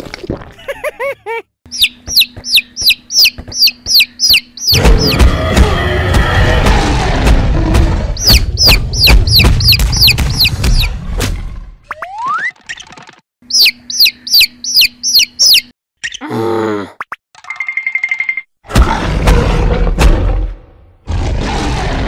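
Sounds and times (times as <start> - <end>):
cartoon chick peeping: 1.7 - 5.2, 8.2 - 10.9, 11.9 - 16.2.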